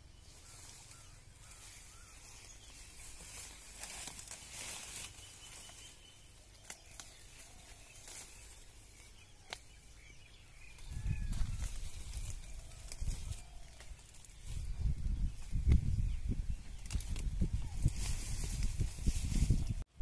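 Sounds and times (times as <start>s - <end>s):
leaves rustling: 0.0s - 20.0s
stems snapping: 3.3s - 5.6s, 6.5s - 8.6s, 9.4s - 9.8s, 10.7s - 14.4s, 16.7s - 18.8s.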